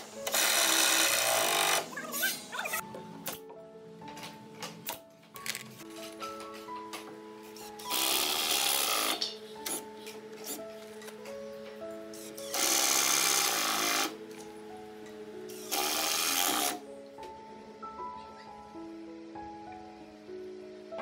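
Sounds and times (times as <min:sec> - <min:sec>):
cordless drill running: 0:00.0 - 0:01.9, 0:07.8 - 0:09.2, 0:12.3 - 0:14.2, 0:15.6 - 0:16.8
background music: 0:00.0 - 0:21.0.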